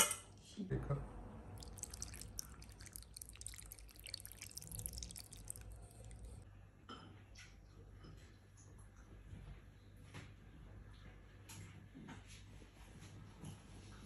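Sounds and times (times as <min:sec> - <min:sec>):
broth splashing into bowl: 0:01.5 - 0:06.4.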